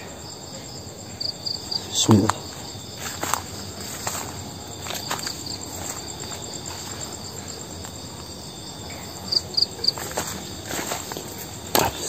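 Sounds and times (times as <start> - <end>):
night insects chirping: 0.0 - 12.0
footsteps on leaf litter: 2.4 - 8.5, 9.1 - 12.0.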